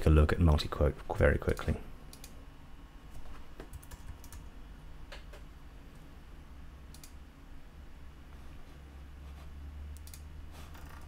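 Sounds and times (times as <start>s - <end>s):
steady low hum: 0.0s - 11.0s
keyboard typing: 3.2s - 4.5s.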